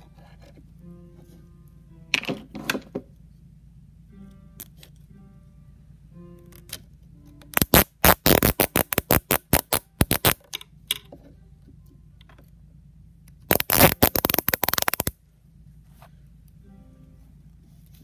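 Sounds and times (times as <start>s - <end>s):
cable tie ratcheting clicks: 7.6s - 11.0s, 13.5s - 15.1s.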